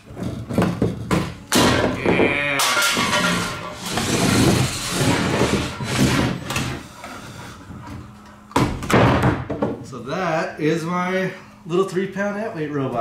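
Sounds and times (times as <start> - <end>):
robot scraping and rattling on wood: 2.2 - 6.9.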